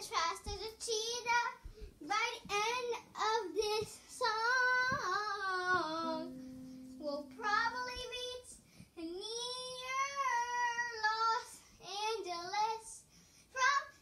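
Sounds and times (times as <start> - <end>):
child singing: 0.0 - 14.0
steady low hum: 0.5 - 9.8.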